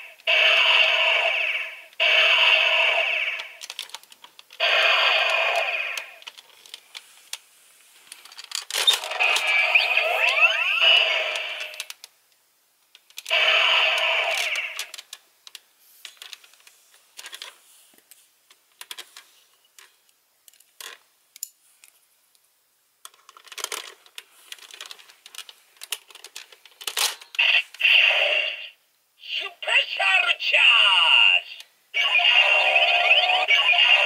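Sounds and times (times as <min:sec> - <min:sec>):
toy gun electronic sound effects: 0:00.3 - 0:03.6, 0:04.6 - 0:06.2, 0:08.8 - 0:11.9, 0:13.3 - 0:14.9, 0:27.4 - 0:28.7, 0:32.0 - 0:34.0
plastic parts clicking: 0:03.4 - 0:04.6, 0:06.0 - 0:07.4, 0:23.0 - 0:27.4.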